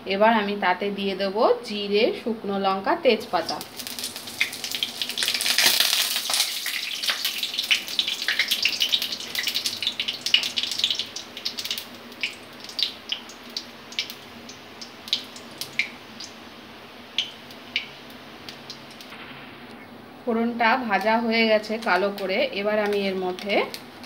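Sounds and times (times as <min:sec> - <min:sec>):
spices sizzling in hot oil: 0:03.1 - 0:19.6, 0:20.4 - 0:24.0
sharp pops of frying: 0:03.4 - 0:16.4, 0:17.1 - 0:19.9, 0:20.9 - 0:24.0.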